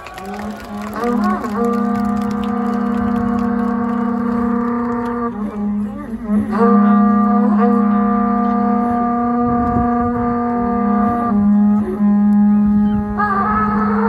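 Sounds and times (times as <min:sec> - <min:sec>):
reedy wind instrument low note: 0:00.3 - 0:14.0.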